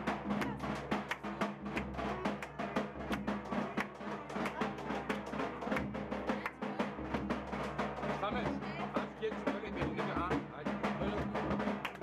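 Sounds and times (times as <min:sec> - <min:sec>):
fast busy drumming: 0:00.0 - 0:12.0.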